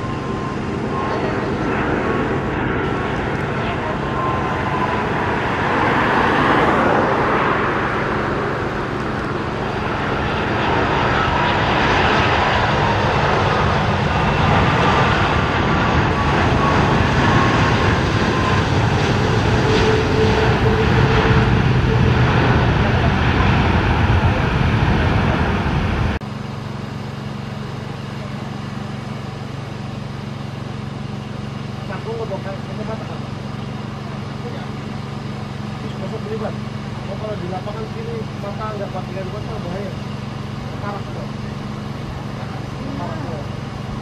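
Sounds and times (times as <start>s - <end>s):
faint descending whine: 0.0s - 26.2s
jet engines running: 0.0s - 44.0s.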